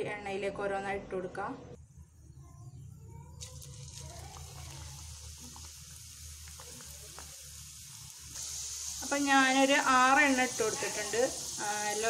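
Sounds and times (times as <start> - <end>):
small crackles: 3.4 - 8.5
oil sizzling in a frying pan: 3.4 - 12.0.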